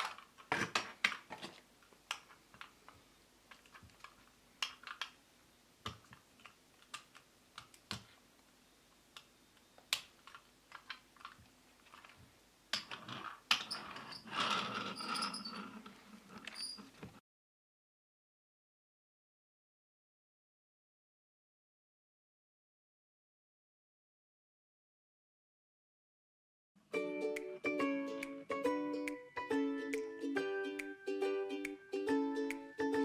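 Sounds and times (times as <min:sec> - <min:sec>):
toy car wheels rolling on wood: 0:12.8 - 0:17.0.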